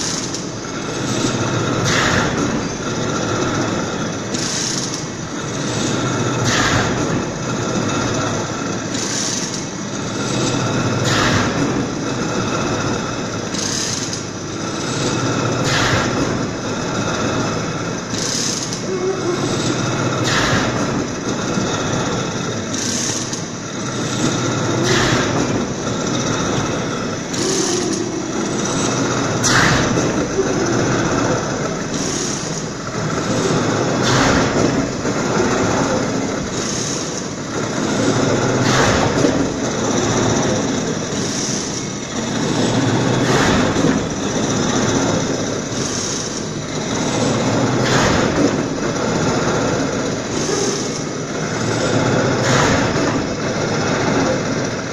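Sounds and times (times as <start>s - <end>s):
veneer slicer machine hum: 0.0s - 54.9s.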